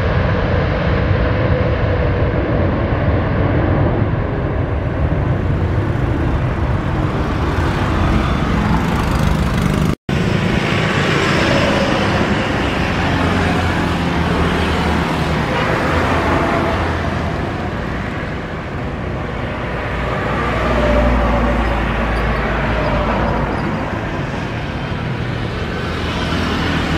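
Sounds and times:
jet engines roaring: 0.0 - 26.9.

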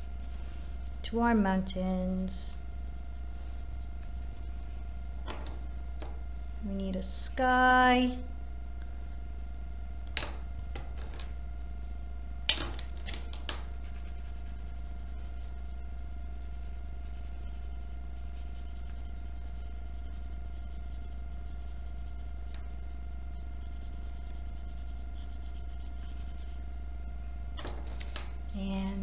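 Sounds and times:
pencil scratching on paper: 0.0 - 1.1, 2.6 - 4.8, 13.7 - 26.7
steady low hum: 0.0 - 29.0.

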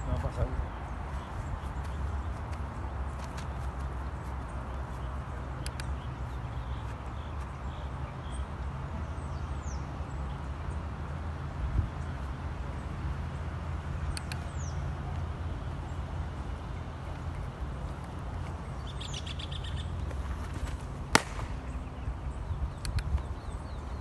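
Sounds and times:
birds chirping: 0.0 - 24.0
baseball smacking leather glove: 20.0 - 22.0.

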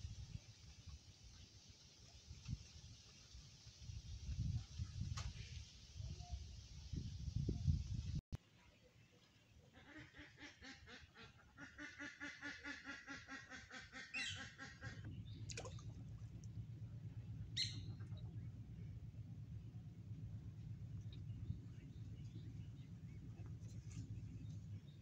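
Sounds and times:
ducks quacking: 9.7 - 15.1
steady low hum: 14.6 - 25.0.

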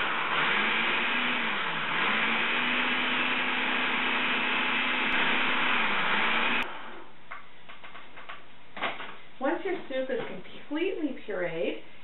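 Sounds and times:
food processor motor whirring: 0.0 - 7.0.

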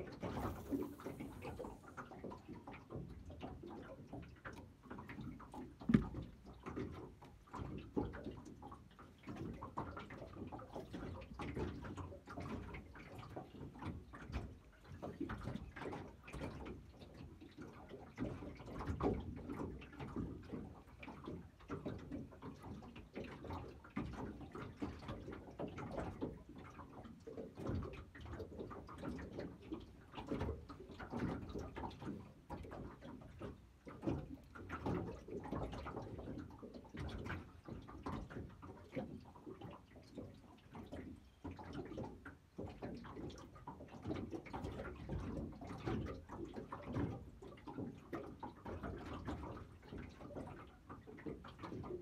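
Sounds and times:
waves lapping against hull: 0.0 - 52.0
light knocks: 5.9 - 6.3.

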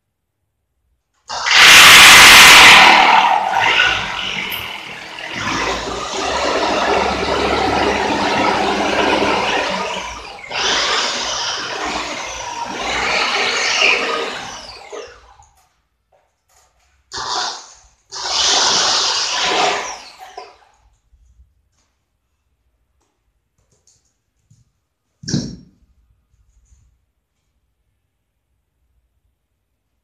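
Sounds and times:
power drill drilling into wall: 1.3 - 15.5, 17.1 - 20.7.

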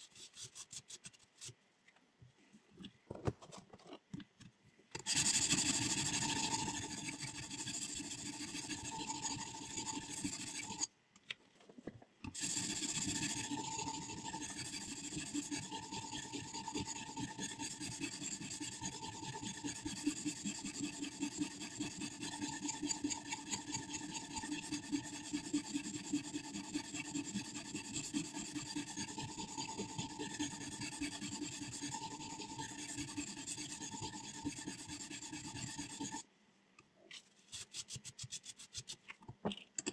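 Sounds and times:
sharpening stone scraping blade: 5.0 - 10.9, 12.3 - 36.2.

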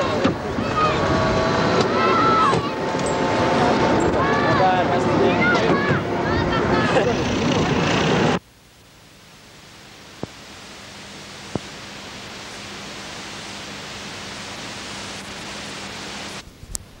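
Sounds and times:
videotape noise hiss: 6.9 - 17.0.

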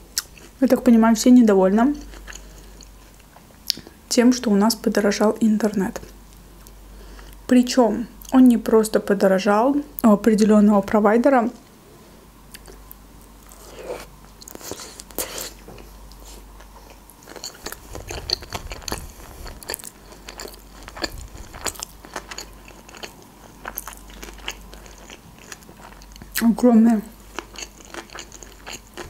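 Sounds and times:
person chewing food: 2.0 - 4.0, 12.5 - 26.4, 27.1 - 29.0.

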